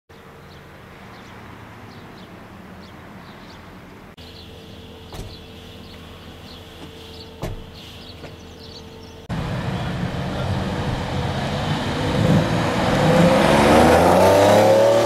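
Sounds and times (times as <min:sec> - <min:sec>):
small birds chirping: 0:00.1 - 0:09.3
car engine idling: 0:03.9 - 0:12.9
short knocks: 0:06.8 - 0:08.5.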